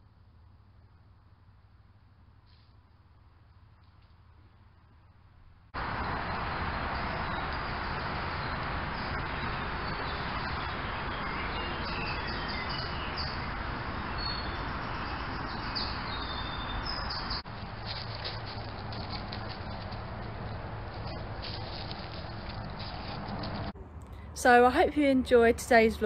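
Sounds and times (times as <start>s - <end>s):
motorway traffic rushing: 5.6s - 26.0s
birds chirping and singing: 8.3s - 17.4s.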